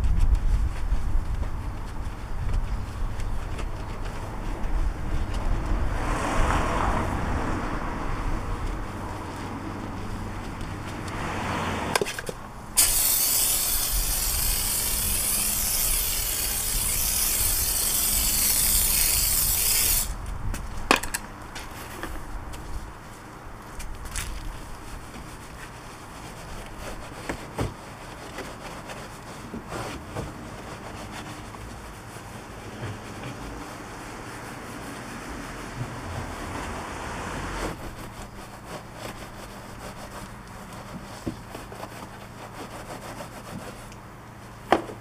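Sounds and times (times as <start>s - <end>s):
water spray hissing: 12.8s - 20.2s
wash mitt scrubbing: 23.0s - 37.0s, 37.6s - 44.2s.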